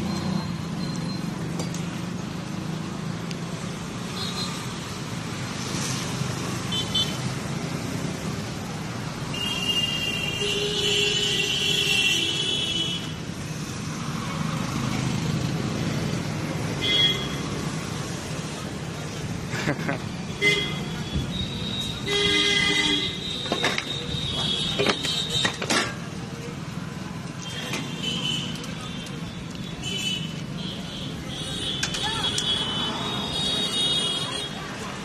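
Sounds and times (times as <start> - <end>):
street traffic: 0.0 - 35.0
vehicle horns tooting: 20.4 - 25.6.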